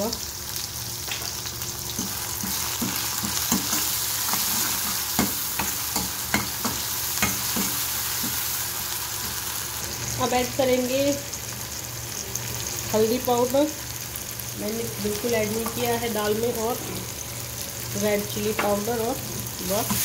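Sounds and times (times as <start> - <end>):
vegetables sizzling in oil: 0.0 - 20.0.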